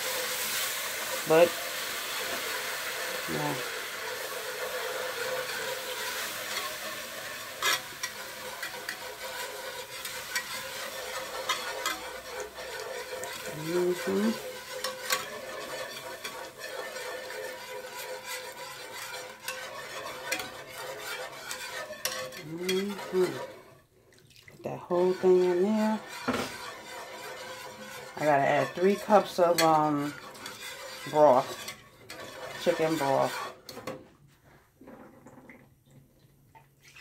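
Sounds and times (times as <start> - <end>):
pan sizzling: 0.0 - 34.2
whisk clicking against pan: 4.1 - 23.7, 25.1 - 33.8.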